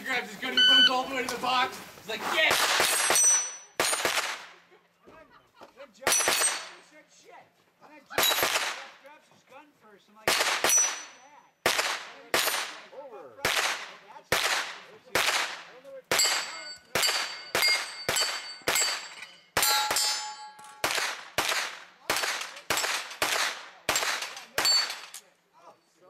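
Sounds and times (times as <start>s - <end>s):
gunshots: 2.4s - 4.6s, 6.0s - 6.8s, 8.2s - 9.0s, 10.2s - 20.1s, 20.8s - 25.2s
steel plates ringing: 2.8s - 3.8s, 16.2s - 20.9s, 24.5s - 25.2s.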